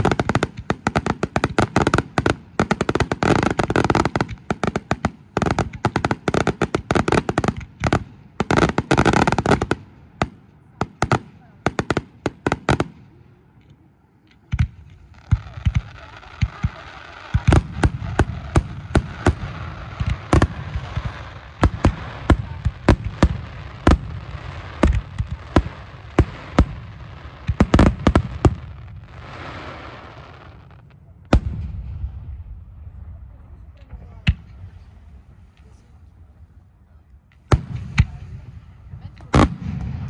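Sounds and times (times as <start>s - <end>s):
fireworks bangs: 0.0s - 13.6s, 14.2s - 36.5s, 37.2s - 40.0s
fireworks crackling hiss: 14.1s - 31.4s, 37.3s - 40.0s.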